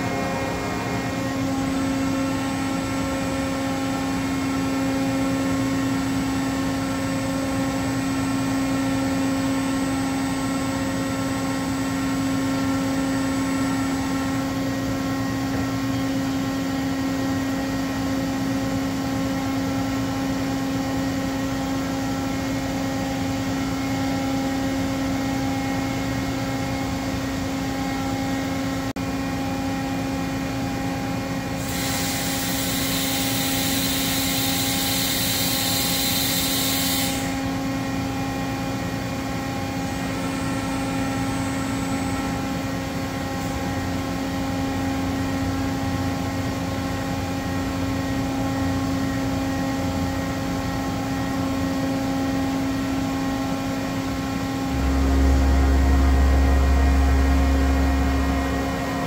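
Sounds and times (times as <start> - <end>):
milling machine humming: 0.0 - 4.8, 53.0 - 59.0
loud hiss: 31.6 - 37.4.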